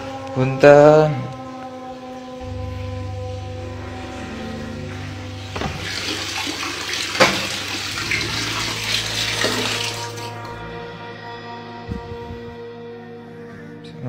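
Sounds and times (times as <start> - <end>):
soft background music: 0.0 - 14.0
water splashing onto tiled floor: 5.4 - 10.5.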